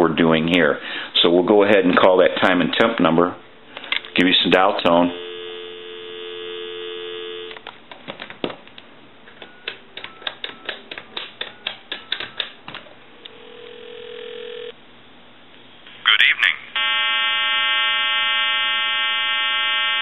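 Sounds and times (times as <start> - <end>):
telephone ringback tone: 5.0 - 7.6, 13.4 - 14.7
telephone dial tone: 5.1 - 7.6, 13.4 - 14.7.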